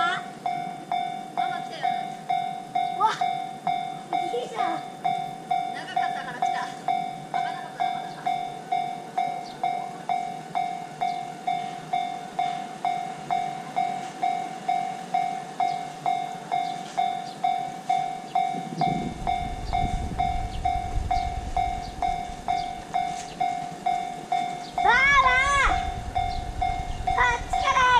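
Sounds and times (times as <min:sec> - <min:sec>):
level-crossing warning bell: 0:00.0 - 0:27.9
low rumble: 0:18.6 - 0:27.9.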